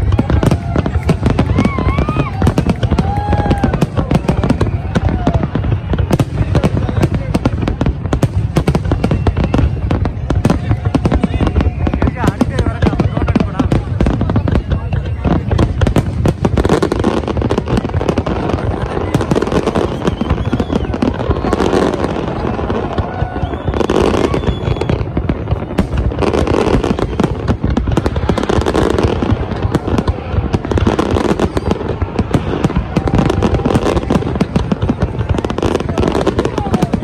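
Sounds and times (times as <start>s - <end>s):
crowd voices: 0.0s - 37.0s
fireworks bursting and crackling: 0.0s - 37.0s.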